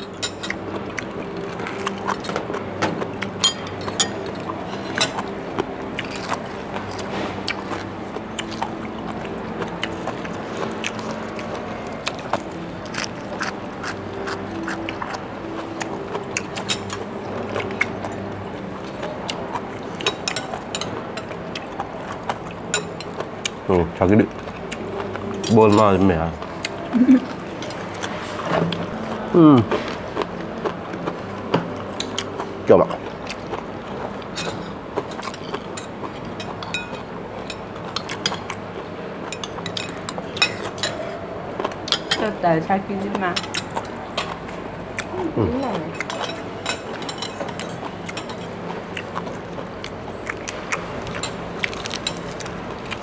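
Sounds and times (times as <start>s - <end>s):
steady low hum: 0.0s - 53.0s
chewing: 0.5s - 23.6s, 31.8s - 42.2s, 43.1s - 53.0s
spoons clinking against bowls: 3.4s - 5.3s, 34.3s - 38.6s, 39.2s - 41.1s, 45.9s - 48.5s.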